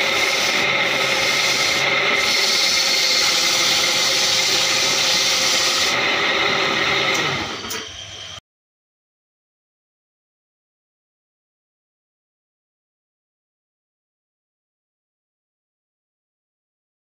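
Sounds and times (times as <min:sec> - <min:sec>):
sandpaper hissing on wood: 0:00.0 - 0:05.9
lathe motor hum: 0:00.0 - 0:08.4.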